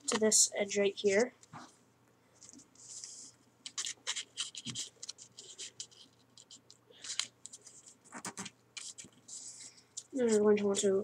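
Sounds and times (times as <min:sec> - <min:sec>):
paper being folded and creased: 0:02.4 - 0:10.9.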